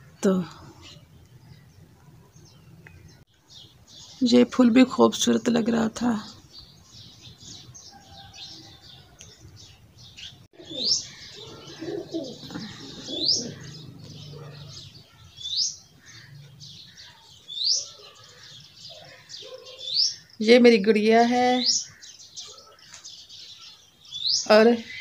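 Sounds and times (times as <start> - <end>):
pigeons cooing softly: 7.2 - 15.3, 16.0 - 20.3, 21.9 - 23.2.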